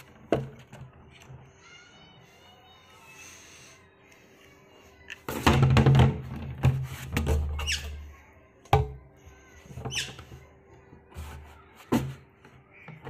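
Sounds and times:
plastic tank knocking and thumping: 5.3s - 7.6s.

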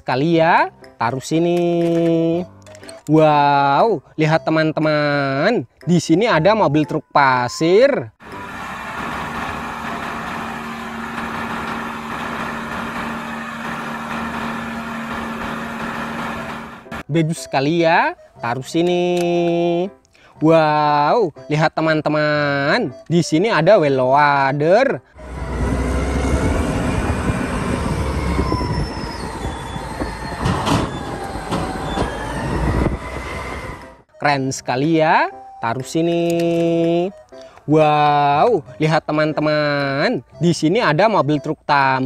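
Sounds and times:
high whines shifting in pitch: 8.2s - 17.0s, 25.2s - 34.1s
diesel truck engine running: 8.2s - 17.1s, 25.0s - 34.1s.

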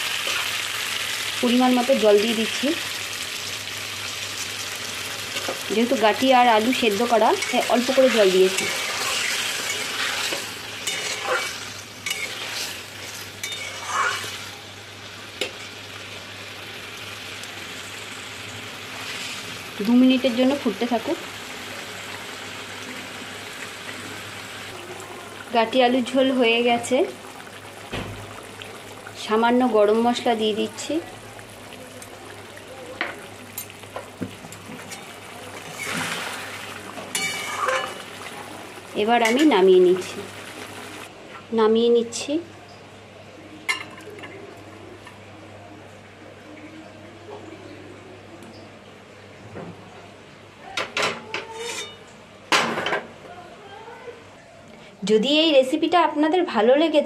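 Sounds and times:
curry sizzling: 0.0s - 41.1s
spatula scraping a pan: 7.4s - 14.4s, 34.8s - 38.0s, 51.4s - 52.0s
curry simmering and bubbling: 21.2s - 41.1s.

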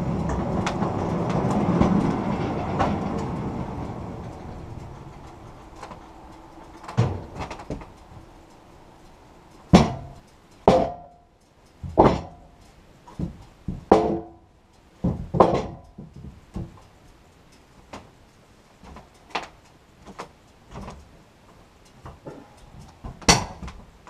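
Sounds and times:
hollow wooden board thunks: 9.7s - 11.2s, 11.8s - 12.4s, 13.2s - 14.4s, 15.0s - 16.8s.

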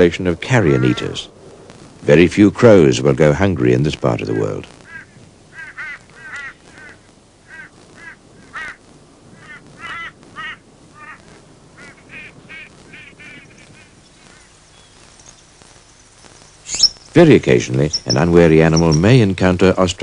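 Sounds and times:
crows cawing: 0.6s - 1.2s, 4.8s - 14.7s.

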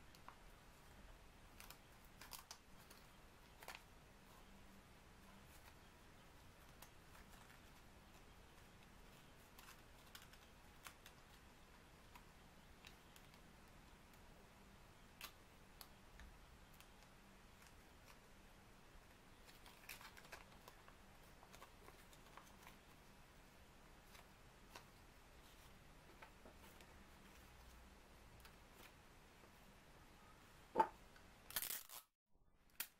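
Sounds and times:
quiet room hiss: 0.0s - 32.9s
paper and tape crinkling: 6.6s - 11.4s, 19.4s - 23.0s, 31.5s - 32.1s.

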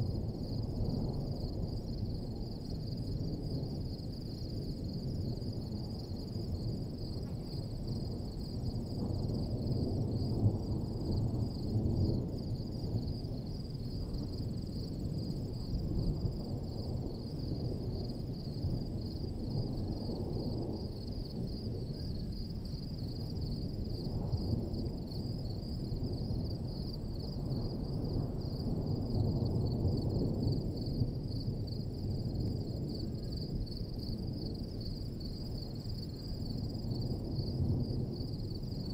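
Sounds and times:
insects trilling: 33.2s - 38.9s.

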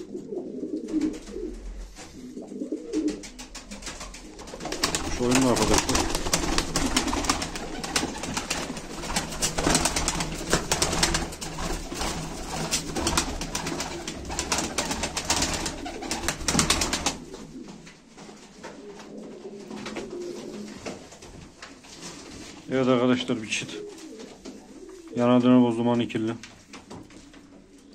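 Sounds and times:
pigeons cooing: 0.0s - 21.0s, 23.4s - 25.4s
pigeon wings flapping: 0.8s - 2.1s, 2.8s - 22.5s.

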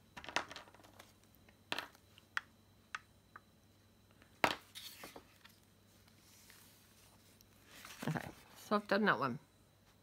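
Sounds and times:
paper rustling: 4.7s - 8.6s.

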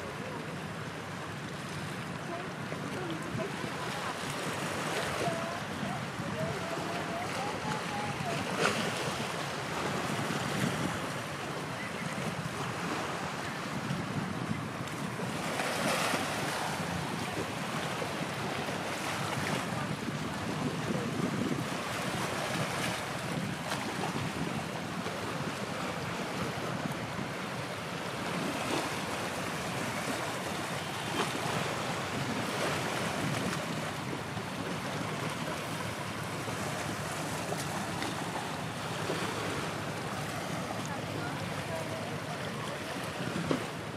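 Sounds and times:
water lapping: 0.0s - 43.9s
wind rushing over microphone: 5.2s - 30.4s, 31.0s - 35.6s, 42.5s - 43.9s.

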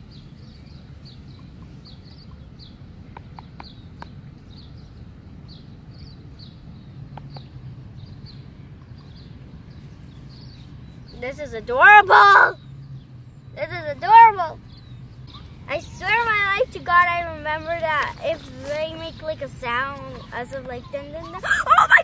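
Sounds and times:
wind rumble on microphone: 0.0s - 11.3s.

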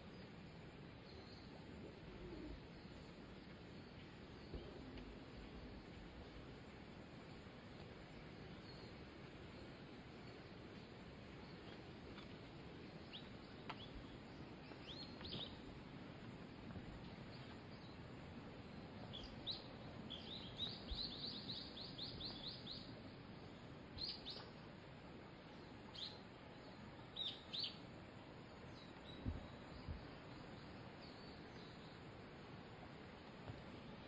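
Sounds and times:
faint background hiss: 0.0s - 34.0s
small bird chirping: 19.0s - 22.9s, 24.0s - 24.6s, 25.9s - 27.9s.

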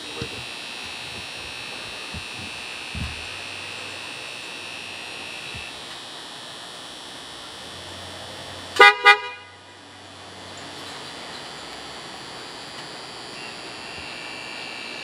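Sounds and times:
car horn blasts: 8.8s - 9.6s.

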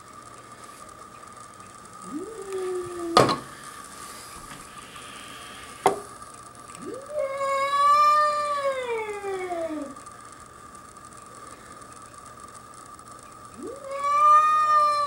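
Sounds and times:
cat yowling: 6.8s - 10.0s, 13.6s - 15.0s.

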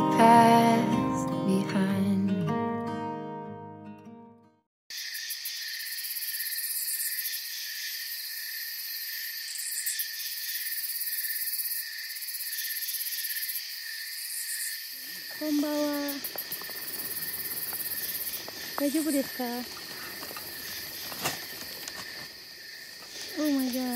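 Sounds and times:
guitar music: 0.0s - 4.6s
night insects chorus: 4.9s - 23.9s.

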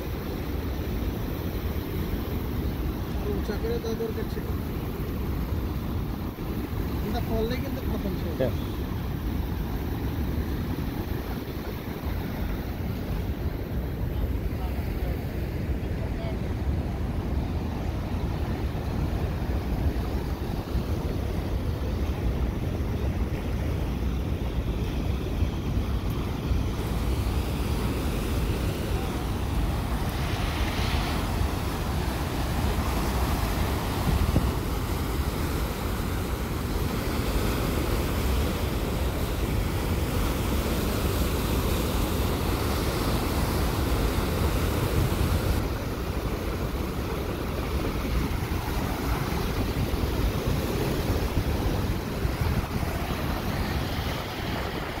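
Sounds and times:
waterfall rushing: 25.2s - 55.0s.

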